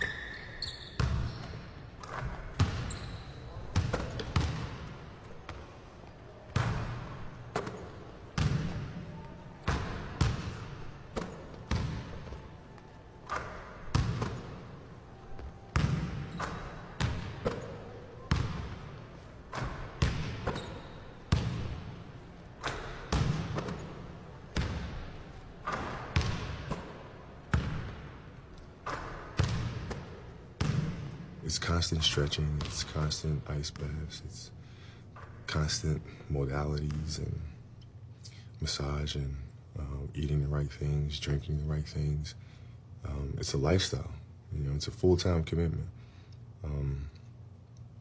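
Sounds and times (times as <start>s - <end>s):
basketball bouncing on gym floor: 0.0s - 5.7s, 6.5s - 22.0s, 22.6s - 31.2s.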